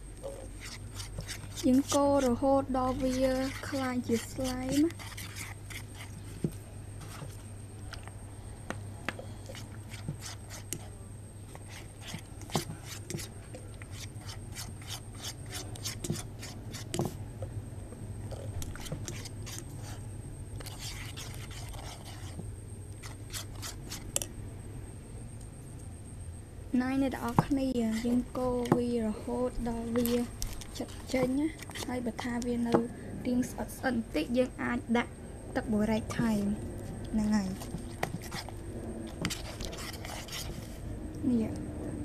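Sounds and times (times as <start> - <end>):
plastic spoon stirring slime: 0.2 - 17.2, 18.2 - 24.3, 27.2 - 32.8, 36.8 - 40.9.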